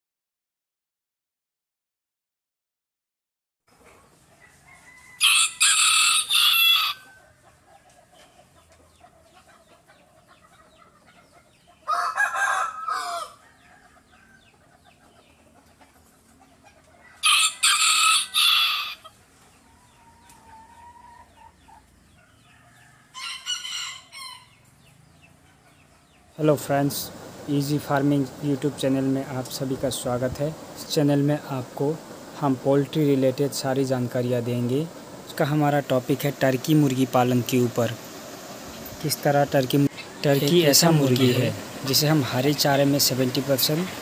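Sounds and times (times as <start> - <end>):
rooster crowing: 4.4 - 7.3, 11.9 - 14.5, 17.0 - 19.1, 22.3 - 24.6
chicken clucking: 6.9 - 17.8, 18.8 - 33.2.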